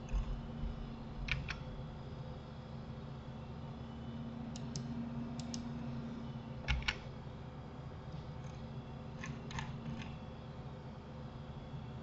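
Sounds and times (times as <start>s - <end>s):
faint steady hum: 0.0s - 12.0s
computer mouse clicking: 1.2s - 1.6s, 4.5s - 5.6s, 6.7s - 7.0s, 9.2s - 10.2s.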